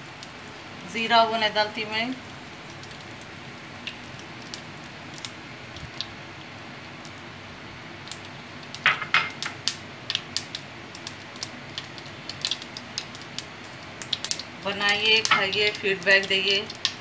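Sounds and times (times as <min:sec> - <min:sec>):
faint oil sizzle: 0:00.0 - 0:17.0
mustard seeds popping in oil: 0:08.0 - 0:17.0.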